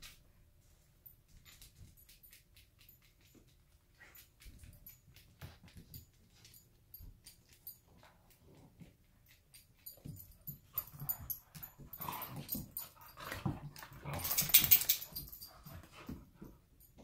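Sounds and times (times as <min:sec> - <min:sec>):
dogs growling: 0:11.9 - 0:14.8.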